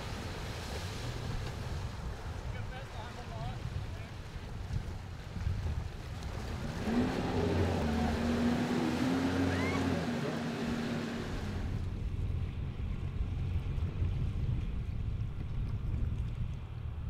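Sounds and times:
watercraft engine revving: 6.1 - 12.0.

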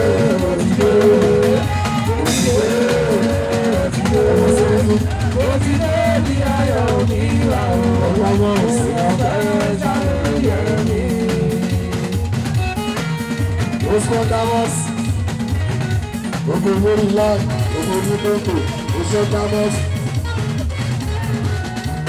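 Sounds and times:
lead voice singing: 0.0 - 12.7, 13.7 - 15.3
drums and percussion: 0.0 - 22.0.

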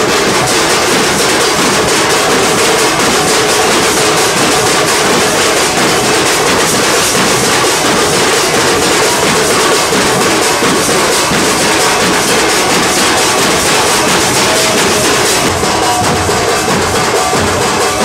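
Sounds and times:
barrel drums beaten fast: 0.0 - 18.0.

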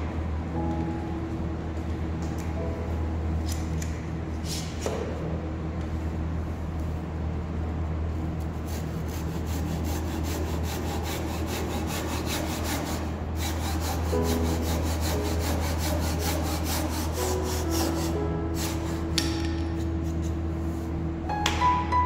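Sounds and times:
steady low hum: 0.0 - 22.0
handsaw cutting wood: 9.1 - 19.1.

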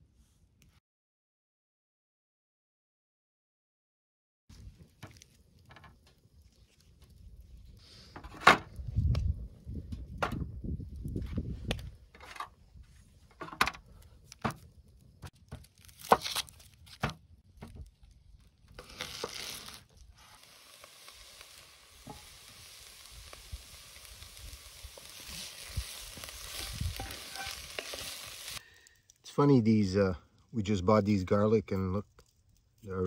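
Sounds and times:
onions sizzling in a pot: 18.8 - 28.7.

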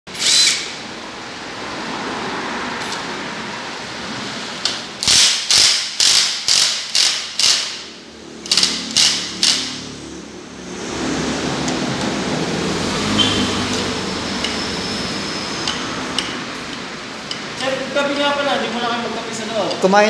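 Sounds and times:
impact wrench hammering: 5.0 - 9.9.

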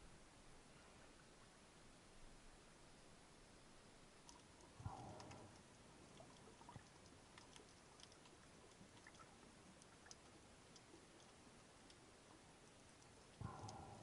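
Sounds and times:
faint underwater hiss: 0.0 - 14.0
small underwater clicks: 4.1 - 14.0.

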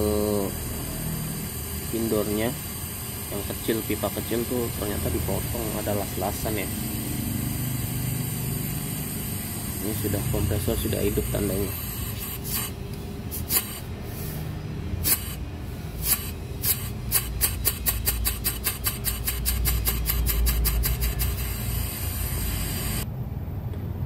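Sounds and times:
air conditioner compressor humming: 0.0 - 23.1
gas hissing from hoses: 0.0 - 23.1
sharp clicks: 17.1 - 21.5.

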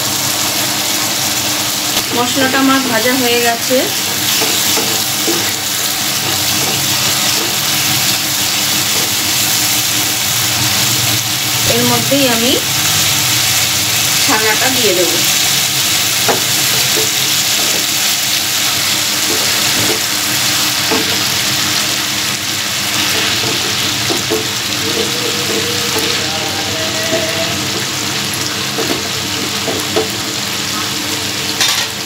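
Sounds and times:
paste sizzling in oil: 0.0 - 31.5.

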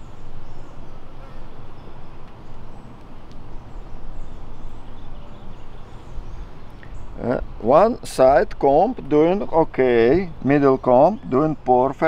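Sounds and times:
honeybees humming: 0.0 - 12.0
faint bird chirps: 3.6 - 7.4.

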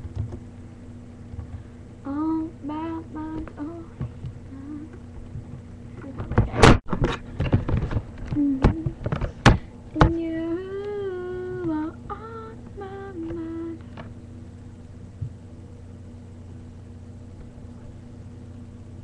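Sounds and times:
girl humming: 2.0 - 5.0, 8.3 - 9.0, 10.0 - 13.8.

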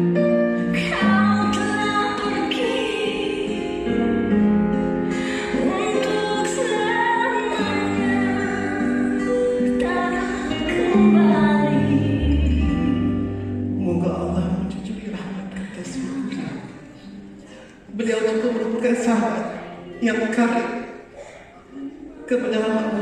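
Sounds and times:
person singing: 5.1 - 15.0.

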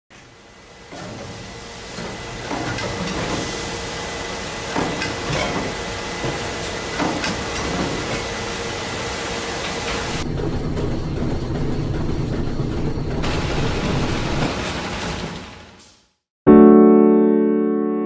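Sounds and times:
machinery hissing: 0.2 - 16.1
mechanical clanks: 0.9 - 3.6, 4.7 - 8.4.

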